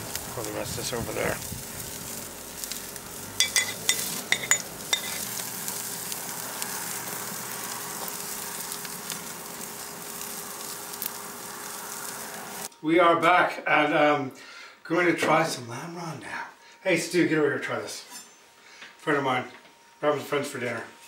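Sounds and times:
fat sizzling on meat: 0:00.0 - 0:12.7.

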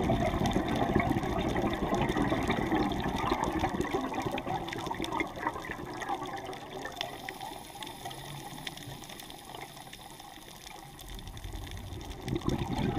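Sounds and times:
underwater regulator bubbling: 0:00.0 - 0:07.4, 0:11.0 - 0:12.9
faint clicks: 0:03.0 - 0:12.9.

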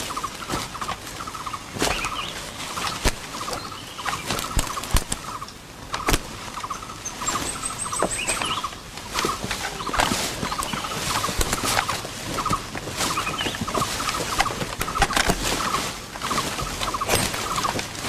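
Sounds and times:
pulsing animal calls: 0:00.0 - 0:18.0
sharp snaps and clicks: 0:02.8 - 0:06.3.

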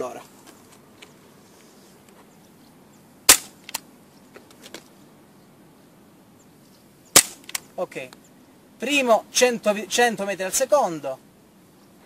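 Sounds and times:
airsoft pistol shot: 0:03.3 - 0:03.6, 0:07.2 - 0:07.6.

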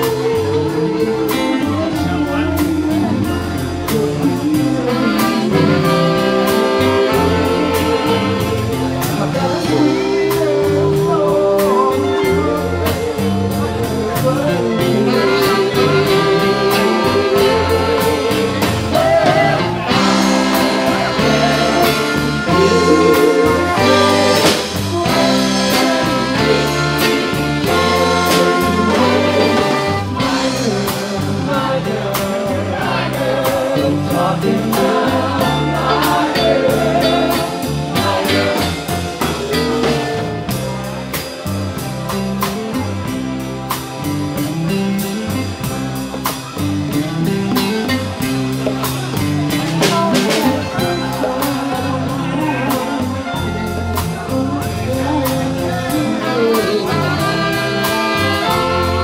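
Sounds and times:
person singing: 0:00.0 - 0:40.8, 0:46.9 - 0:59.0
trumpet and saxophone: 0:00.0 - 0:41.2, 0:41.8 - 0:59.0
guitar: 0:00.0 - 0:59.0
steady drum beat: 0:00.0 - 0:59.0.

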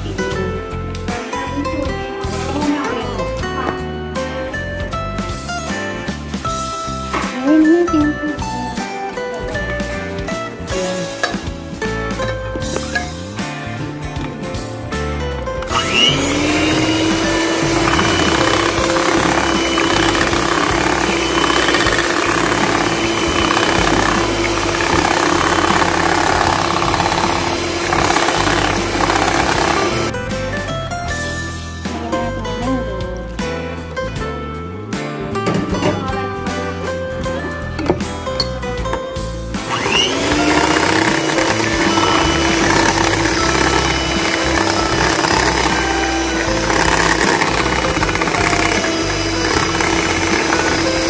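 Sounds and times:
background music: 0:00.0 - 0:51.0
electric hand mixer running: 0:15.7 - 0:30.1, 0:39.6 - 0:51.0
mixture churning in bowl: 0:15.7 - 0:30.1, 0:39.7 - 0:51.0.

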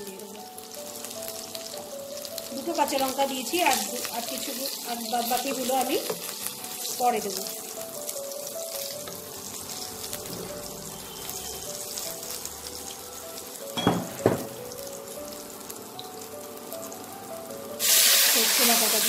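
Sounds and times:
oil sizzling in a wok: 0:00.0 - 0:19.0
soft background music: 0:00.0 - 0:19.0
sharp knocks: 0:13.8 - 0:14.6.

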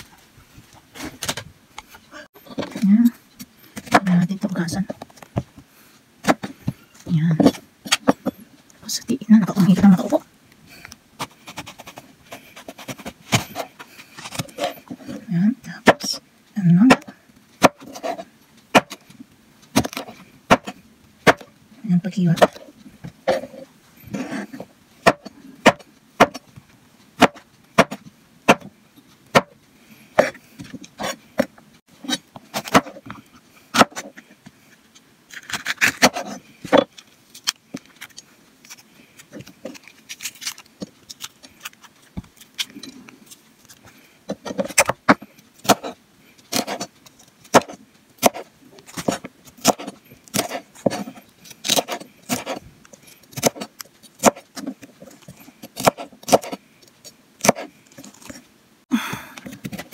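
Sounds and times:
knife chopping on cutting board: 0:27.2 - 0:28.7, 0:49.0 - 0:51.1, 0:55.8 - 0:56.6.

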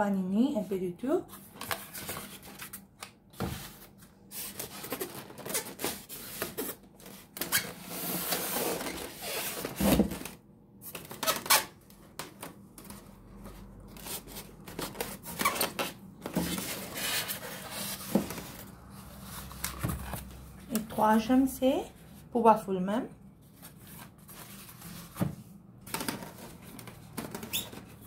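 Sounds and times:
foam and cardboard scraping: 0:03.4 - 0:10.1, 0:14.0 - 0:20.2.

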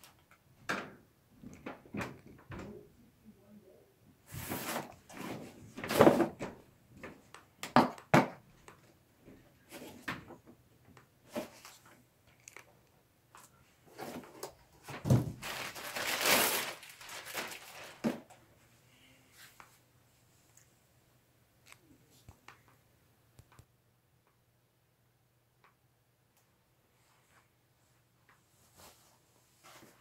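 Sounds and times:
plastic bag rustling: 0:14.8 - 0:18.4.

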